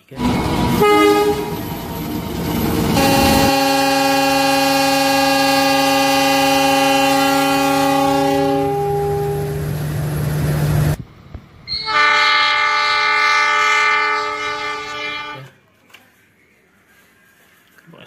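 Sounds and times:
train running noise: 0.0 - 15.6
locomotive chime horn: 0.2 - 1.8, 2.8 - 9.6, 11.7 - 15.5.

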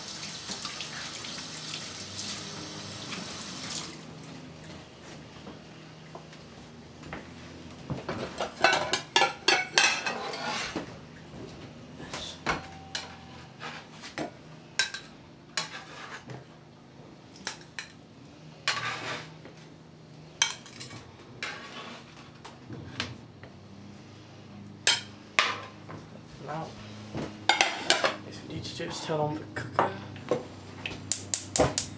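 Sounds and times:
plates and cutlery clattering: 8.1 - 10.8, 12.5 - 16.3, 18.7 - 19.3, 20.4 - 21.8, 24.9 - 25.8, 27.4 - 28.2.

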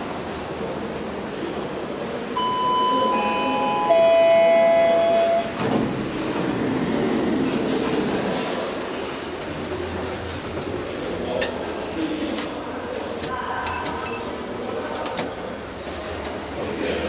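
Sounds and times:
elevator two-tone chime: 2.4 - 5.6.

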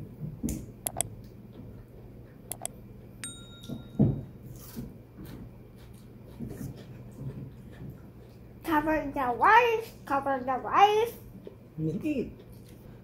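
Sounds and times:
mouse clicks: 0.9 - 1.1, 2.5 - 2.7
notification bell ding: 3.2 - 4.1.

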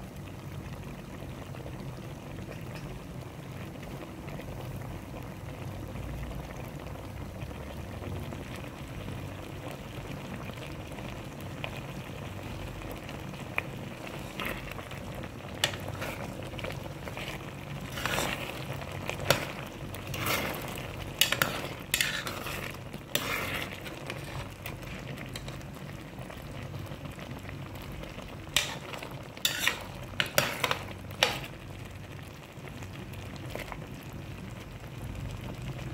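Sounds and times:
stew bubbling in a pot: 0.0 - 35.9
metal spoon scraping a pot: 14.1 - 14.8, 15.6 - 25.6, 28.5 - 31.5.

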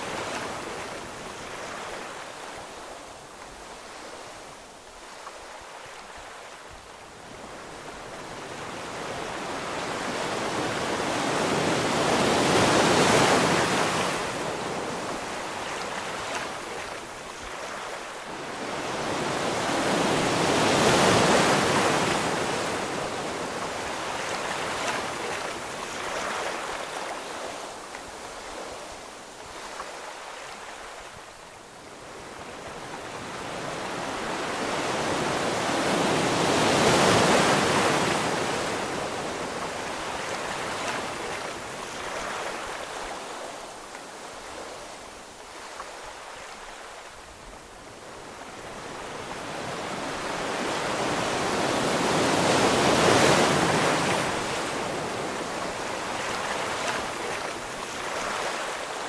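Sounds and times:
ocean waves surging: 7.8 - 27.8, 32.9 - 47.2, 48.3 - 59.0.

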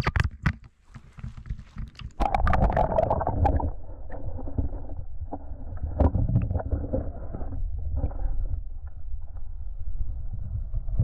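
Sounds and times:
water splashing: 1.1 - 7.5.

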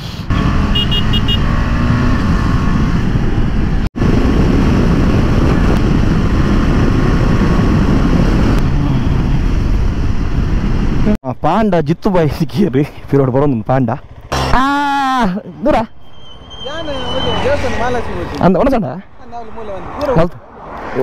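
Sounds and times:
wind rush on helmet microphone: 2.0 - 11.2.

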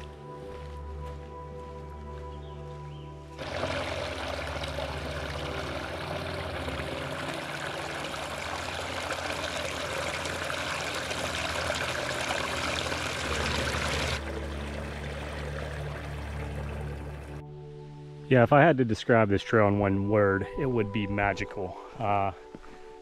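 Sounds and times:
creek rushing over rocks: 3.4 - 17.4.

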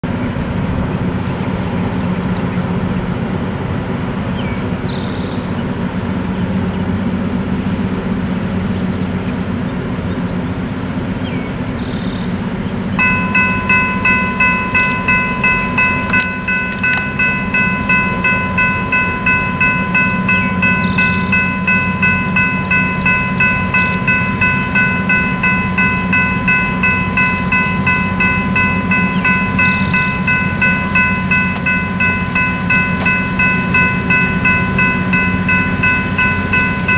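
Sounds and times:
electronic crossing bell ringing: 13.0 - 36.9
low rumble: 13.0 - 36.9.

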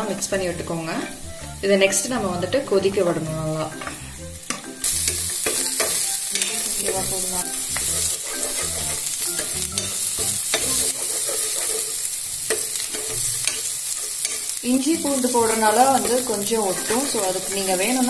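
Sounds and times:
spices sizzling in oil: 0.0 - 18.0
spoon scraping a pan: 3.6 - 18.0.

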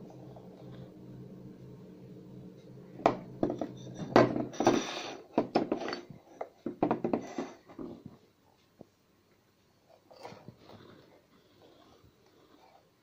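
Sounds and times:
ceramic scraping: 3.4 - 6.5.

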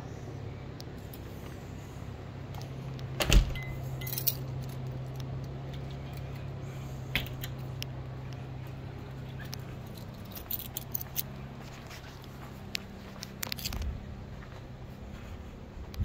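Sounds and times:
steady low hum: 0.0 - 16.0
light clinking and handling: 2.6 - 6.6, 7.2 - 13.9.

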